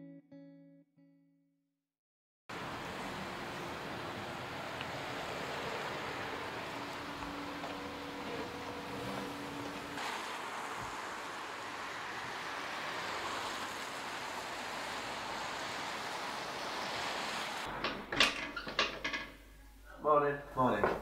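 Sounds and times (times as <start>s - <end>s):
car driving past: 2.5s - 17.8s
street traffic noise: 2.5s - 19.6s
sharp knocks and clatters: 17.7s - 19.5s.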